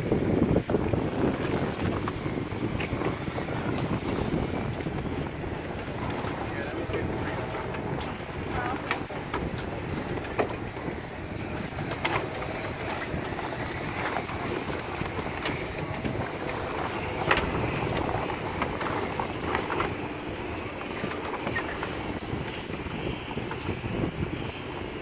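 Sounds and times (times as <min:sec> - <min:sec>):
wind noise on microphone: 0:00.0 - 0:25.0
sailcloth crinkling and rustling: 0:11.4 - 0:23.3.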